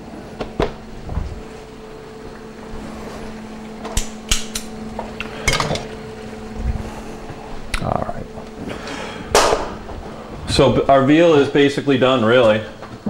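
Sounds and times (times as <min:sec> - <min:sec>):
steady low hum: 0:00.0 - 0:13.0
kitchen utensils clinking: 0:05.2 - 0:05.9.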